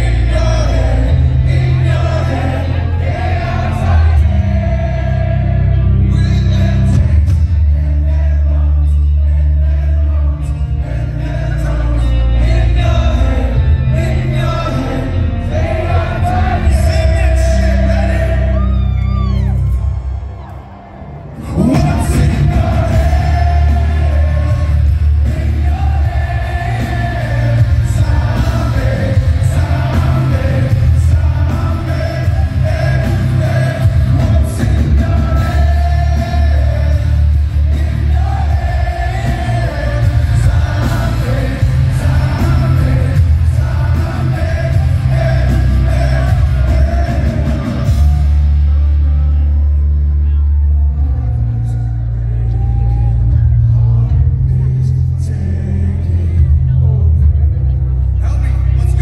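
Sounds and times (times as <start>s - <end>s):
man singing: 0.0s - 19.7s, 21.4s - 59.0s
drums: 0.0s - 59.0s.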